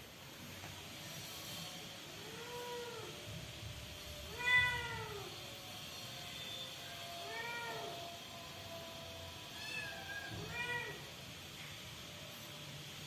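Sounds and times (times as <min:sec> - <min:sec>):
kitten meowing: 0:04.4 - 0:05.3, 0:09.6 - 0:11.0.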